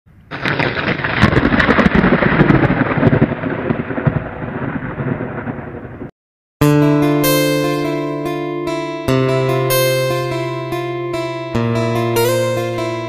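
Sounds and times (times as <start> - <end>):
crackling thunder-like rumble: 0.2 - 6.1
strummed acoustic guitar: 6.6 - 13.0.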